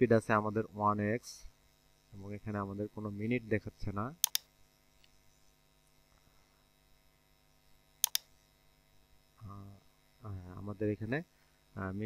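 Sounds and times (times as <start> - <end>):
faint mains hum: 0.0 - 12.0
computer mouse double-clicks: 4.2 - 4.5, 8.0 - 8.3.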